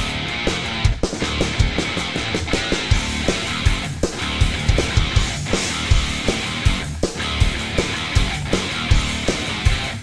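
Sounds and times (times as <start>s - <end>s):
thrash metal music: 0.0s - 10.0s
heavy kick drum hits: 2.9s - 7.8s.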